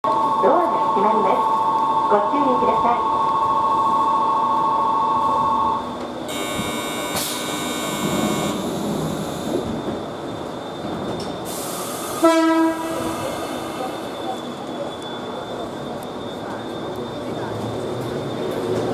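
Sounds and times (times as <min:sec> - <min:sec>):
train horn blast: 0:06.3 - 0:09.3, 0:12.2 - 0:13.1
high ringing: 0:06.3 - 0:09.5
steady electronic tone: 0:06.3 - 0:09.6
hiss of air: 0:11.5 - 0:12.3.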